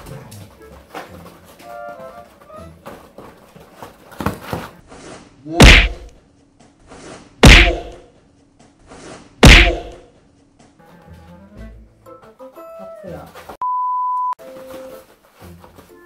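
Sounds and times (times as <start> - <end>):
comic thunk sound effects: 5.6 - 6.1, 7.4 - 8.0, 9.4 - 10.0.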